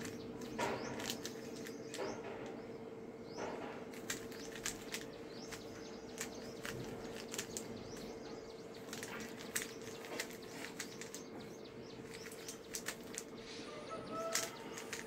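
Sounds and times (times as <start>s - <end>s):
plastic puzzle cube clicking: 0.0s - 2.0s, 3.9s - 8.1s, 8.8s - 11.3s, 12.0s - 13.3s, 14.1s - 15.0s
steady low hum: 0.0s - 15.0s.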